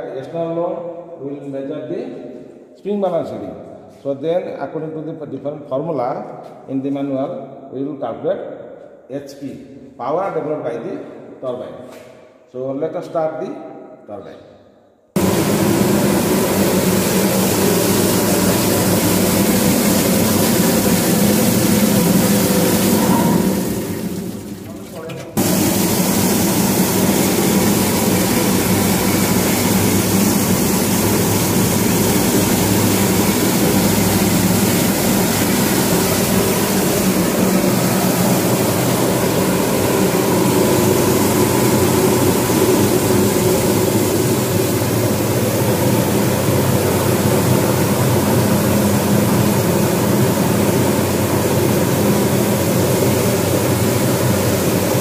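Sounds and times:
mechanical hum: 0.0 - 55.0
water rushing: 15.2 - 55.0.

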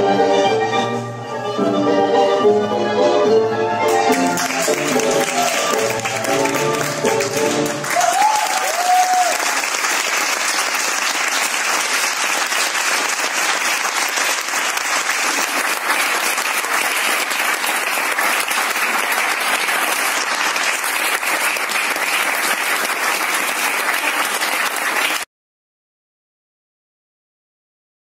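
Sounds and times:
small audience applauding: 3.9 - 25.3.

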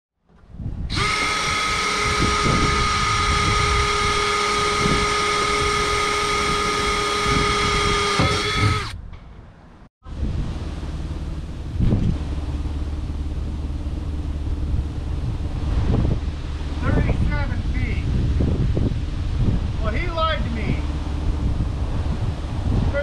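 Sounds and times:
low background rumble: 0.3 - 23.0
power drill whining: 0.9 - 9.0.

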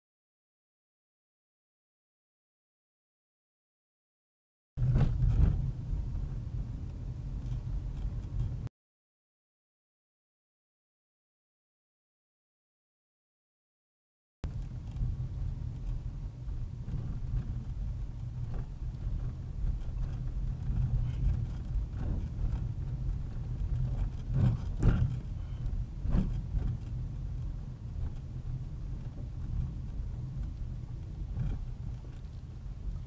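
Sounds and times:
car engine and road rumble: 4.8 - 8.7, 14.4 - 33.0.

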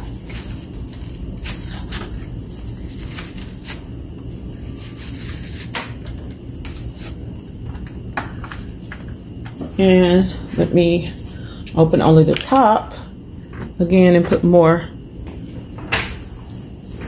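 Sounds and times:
paper tissue rustling: 0.0 - 7.5
steady low hum: 0.0 - 17.0.

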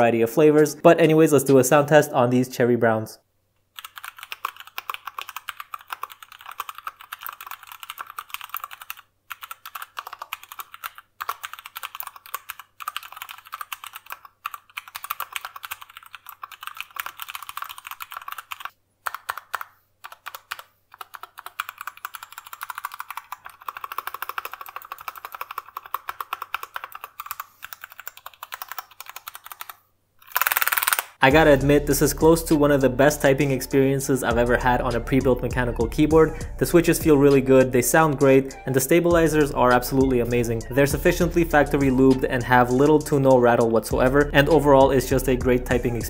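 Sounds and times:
mechanical keyboard typing: 3.8 - 31.2.

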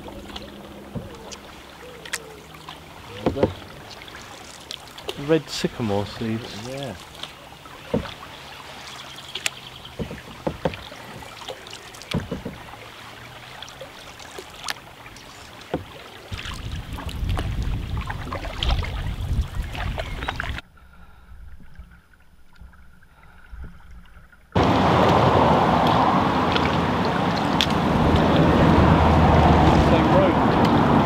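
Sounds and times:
wooden paddle knocking canoe: 0.0 - 20.6, 21.4 - 31.0
paddle blades dipping and dripping: 0.0 - 31.0.

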